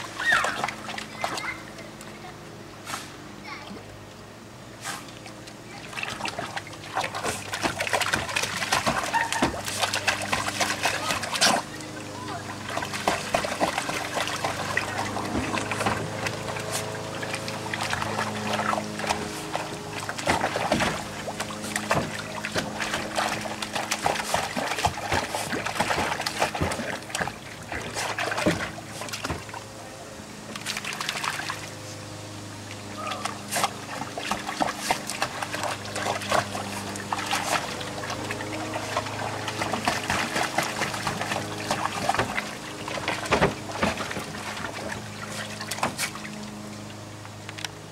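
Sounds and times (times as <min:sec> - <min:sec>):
steady low hum: 0:00.0 - 0:47.9
water splashing in a plastic pool: 0:00.0 - 0:47.9.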